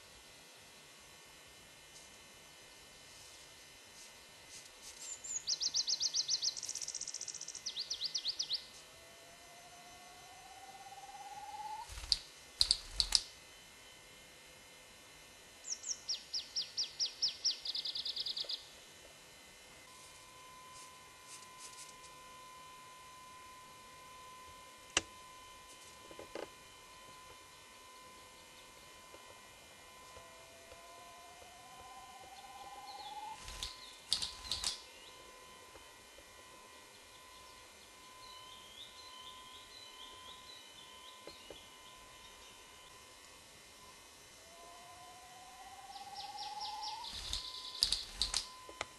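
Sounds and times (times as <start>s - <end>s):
faint high bird chirps: 5.0s - 14.2s, 15.6s - 18.8s, 19.9s - 43.2s, 43.8s - 48.9s
songbird descending trill: 5.3s - 13.3s, 26.6s - 35.8s, 36.4s - 43.0s, 43.8s - 48.8s
grouse rising drawn-out call: 9.6s - 13.2s.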